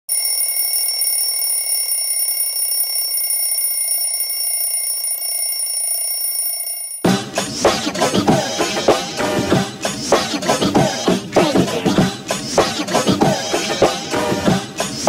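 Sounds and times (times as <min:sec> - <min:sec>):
phone alarm ringing: 0:00.1 - 0:07.0.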